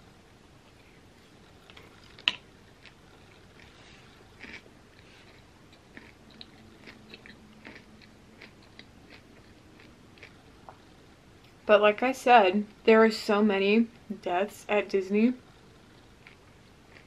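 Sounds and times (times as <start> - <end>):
chewing with wet mouth clicks: 1.4 - 10.8, 15.9 - 17.0.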